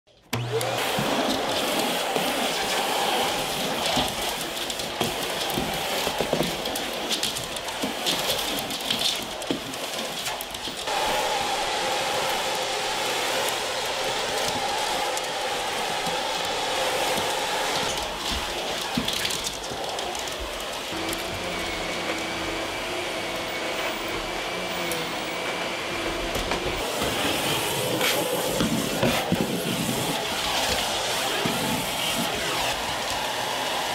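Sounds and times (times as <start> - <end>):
vacuum cleaner motor running: 0.3 - 33.9.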